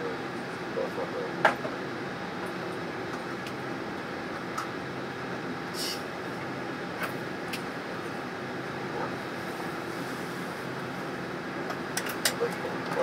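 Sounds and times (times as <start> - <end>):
aircraft cabin engine hum: 0.0 - 13.0
brief hiss: 5.7 - 6.0.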